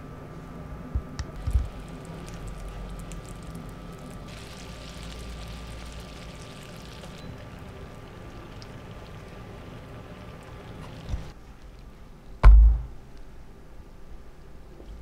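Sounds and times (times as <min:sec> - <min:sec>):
steady hum: 0:00.0 - 0:14.7
syrup bubbling in saucepan: 0:01.4 - 0:11.4
low thumps: 0:12.4 - 0:13.0.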